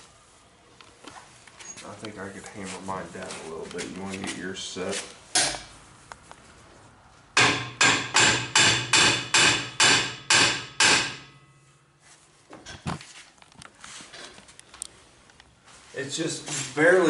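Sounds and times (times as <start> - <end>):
hammer striking steel: 7.4 - 11.6.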